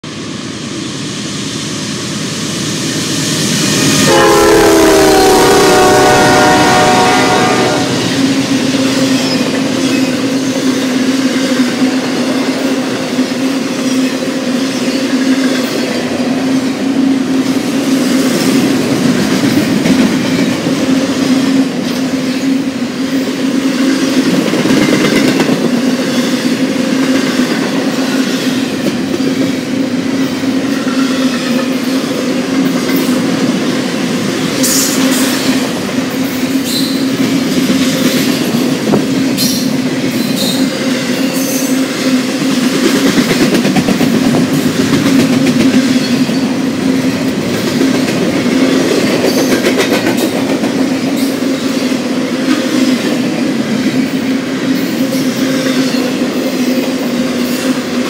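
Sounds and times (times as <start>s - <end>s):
freight train rumbling past: 0.0s - 58.0s
train horn blast: 4.0s - 8.2s.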